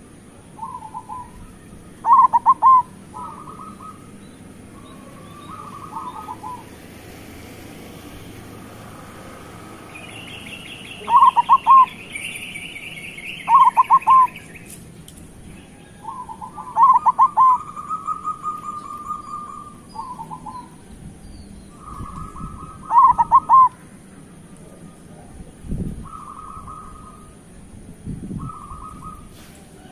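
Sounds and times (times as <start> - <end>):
dove cooing: 0.6 - 6.8, 11.0 - 12.0, 13.4 - 14.4, 16.0 - 20.8, 21.8 - 23.8.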